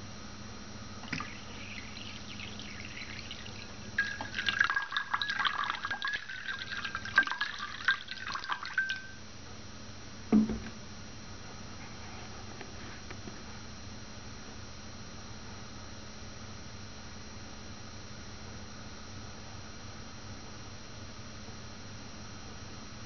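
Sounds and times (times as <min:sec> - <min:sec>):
water pouring onto ceramic plate: 0:01.0 - 0:09.2
low knock: 0:10.3 - 0:10.8.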